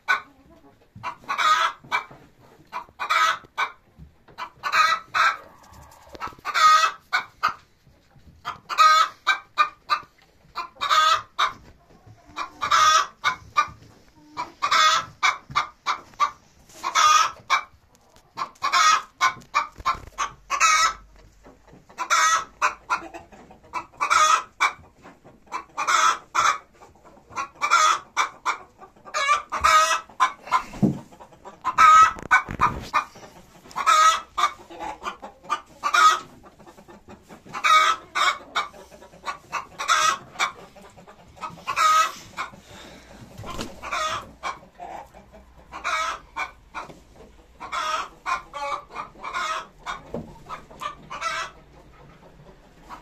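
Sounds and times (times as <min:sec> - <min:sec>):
chickens clucking: 0:00.0 - 0:53.0
loud chicken call: 0:04.6 - 0:07.0.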